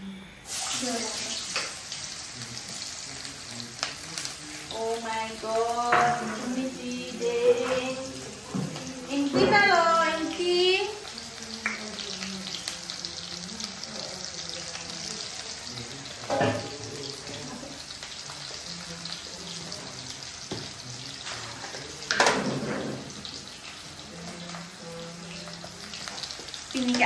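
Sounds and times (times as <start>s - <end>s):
oil sizzling in a wok: 0.0s - 27.0s.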